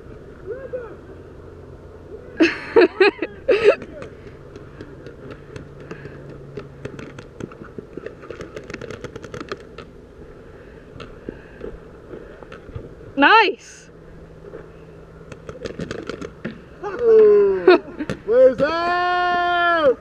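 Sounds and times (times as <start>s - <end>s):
paintball markers firing: 4.0s - 9.9s, 15.3s - 16.6s.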